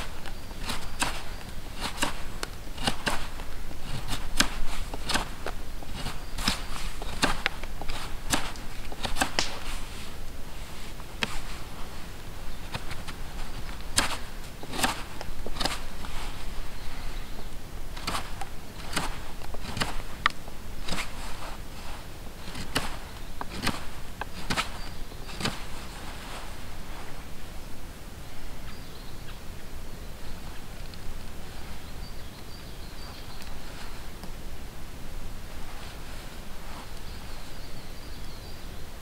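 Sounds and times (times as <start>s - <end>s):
knife shaving wood: 0.0s - 26.8s.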